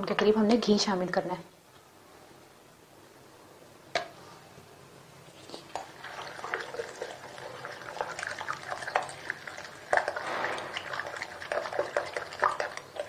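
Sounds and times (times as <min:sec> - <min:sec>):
fork beating eggs in glass bowl: 0:10.8 - 0:13.0.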